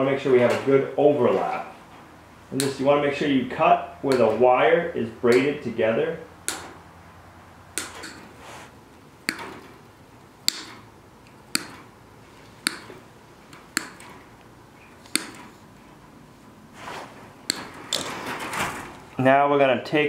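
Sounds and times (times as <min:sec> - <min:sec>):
wire cutters snipping wire: 0:04.1 - 0:04.4, 0:05.3 - 0:05.6, 0:06.4 - 0:06.8, 0:07.7 - 0:08.4, 0:09.2 - 0:15.8, 0:17.4 - 0:18.9
wire mesh rustling: 0:10.5 - 0:19.2.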